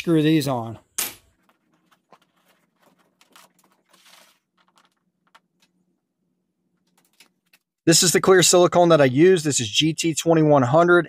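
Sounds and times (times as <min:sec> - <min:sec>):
faint clicks and rustles: 0:01.4 - 0:06.0, 0:06.7 - 0:07.7.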